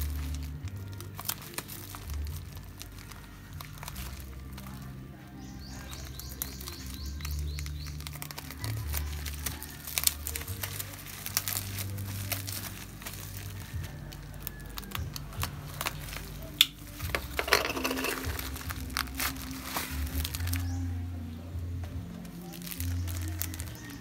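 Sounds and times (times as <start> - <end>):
plastic crinkling and rustling: 0.0 - 24.0
plastic bag snap: 5.6 - 20.9, 21.9 - 24.0.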